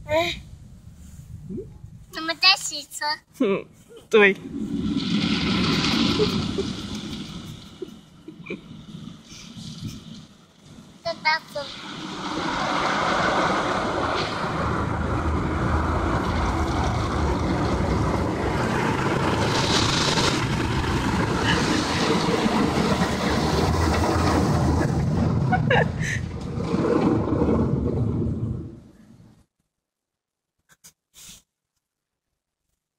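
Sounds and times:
car wash rushing: 4.3 - 29.0
low rumble: 4.3 - 29.4.

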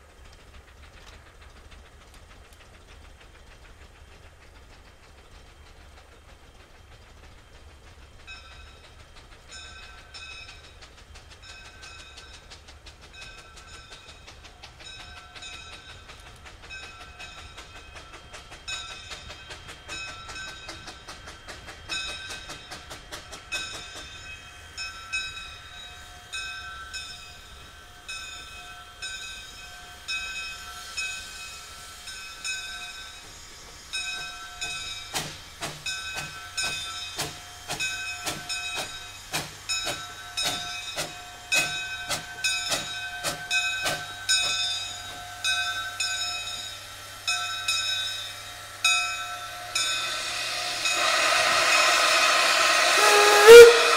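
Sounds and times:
steam locomotive approaching: 0.0 - 53.9
locomotive bell ringing: 8.2 - 10.8, 37.8 - 53.9.

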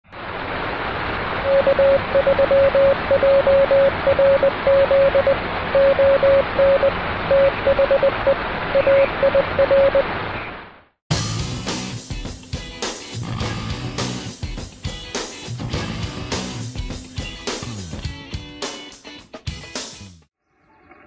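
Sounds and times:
morse code beeps: 1.4 - 10.1
radio static hiss: 1.4 - 10.7.

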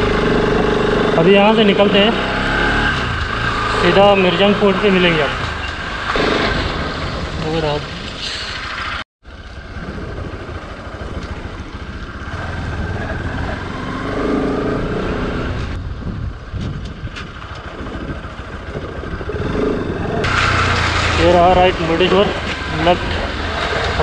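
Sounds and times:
motorcycle engine running: 0.0 - 7.2, 9.2 - 24.0
wind noise: 9.5 - 13.6, 14.8 - 24.0.

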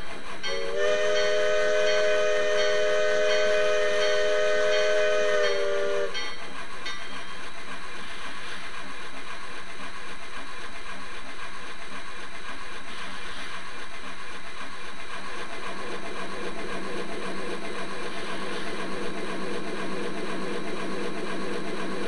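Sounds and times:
steam hiss: 0.0 - 22.0
steam locomotive running: 0.0 - 22.0
steam whistle chord: 0.4 - 6.4.

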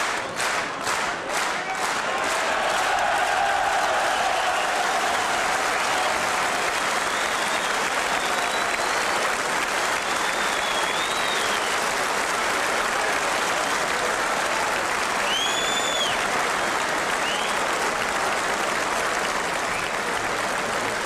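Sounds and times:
crowd applauding: 0.0 - 21.0
faint whistling: 7.1 - 9.2, 10.0 - 11.8, 15.3 - 16.2.

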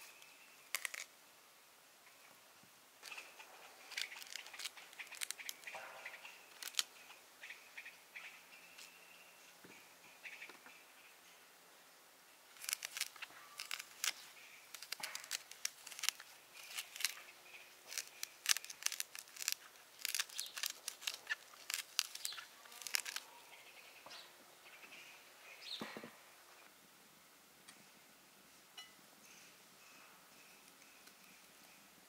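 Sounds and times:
teaspoon scraping fruit: 0.7 - 1.1, 3.0 - 7.1, 12.6 - 23.3.

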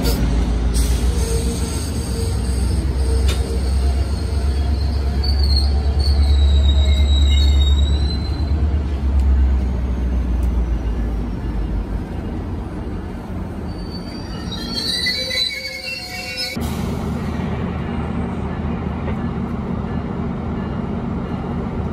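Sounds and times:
high metallic squeal: 0.8 - 8.5, 13.6 - 16.6.

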